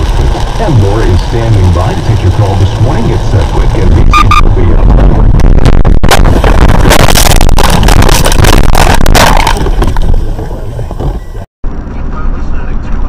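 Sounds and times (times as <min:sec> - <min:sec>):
car crash crunching and banging: 0:06.2 - 0:11.2.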